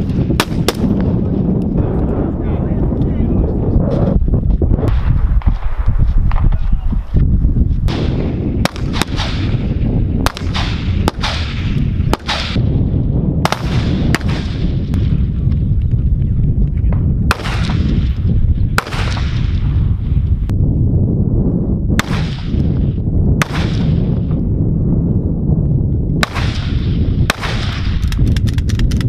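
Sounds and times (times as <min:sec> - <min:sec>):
low rumble: 0:00.0 - 0:29.0
rifle gunshots echoing: 0:00.2 - 0:01.1, 0:07.9 - 0:12.8, 0:13.4 - 0:15.3, 0:17.3 - 0:19.8, 0:22.0 - 0:22.8, 0:23.4 - 0:24.2, 0:26.2 - 0:28.0.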